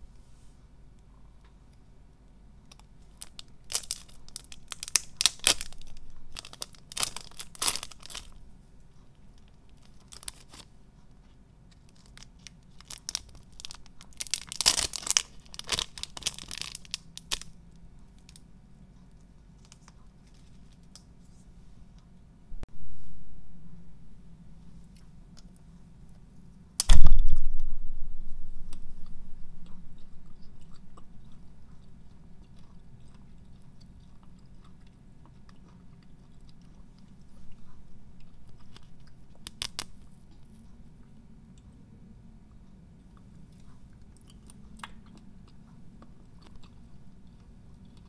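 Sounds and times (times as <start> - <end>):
plastic wrapper tearing and crinkling: 2.7 - 8.3, 9.8 - 10.7, 11.9 - 17.6, 38.7 - 40.0.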